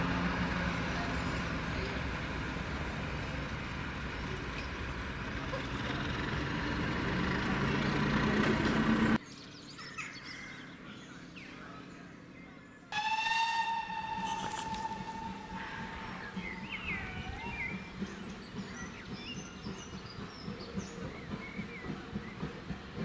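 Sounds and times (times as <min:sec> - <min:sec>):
diesel locomotive engine: 0:00.0 - 0:09.6, 0:13.0 - 0:23.0
faint birdsong: 0:00.6 - 0:23.0
train whistle: 0:13.0 - 0:17.9.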